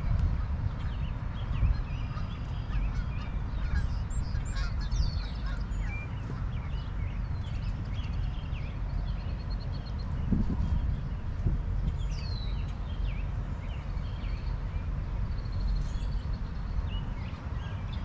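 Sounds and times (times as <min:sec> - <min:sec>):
wind rumble on microphone: 0:00.0 - 0:18.0
birds chirping and calling: 0:00.4 - 0:10.9.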